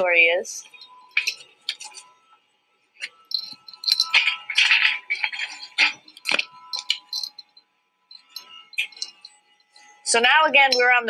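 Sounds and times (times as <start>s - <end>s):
faint steady tone: 0.0s - 11.0s
light clinks and knocks: 0.6s - 2.1s, 3.0s - 10.0s.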